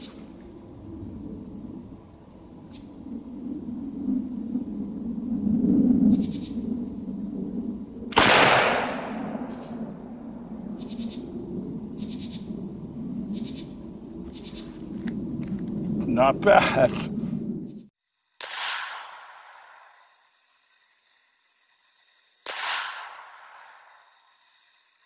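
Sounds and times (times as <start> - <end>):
insects chirping: 0.0 - 25.0
revolver shot with echo: 8.1 - 9.8.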